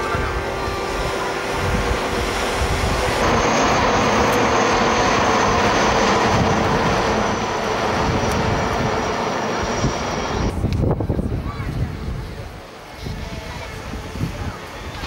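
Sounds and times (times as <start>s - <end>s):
helicopter flying past: 0.0s - 11.2s.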